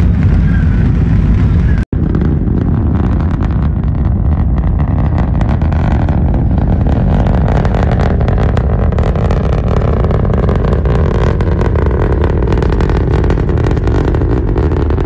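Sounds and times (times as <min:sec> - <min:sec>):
rocket engines rumbling: 0:00.0 - 0:15.0.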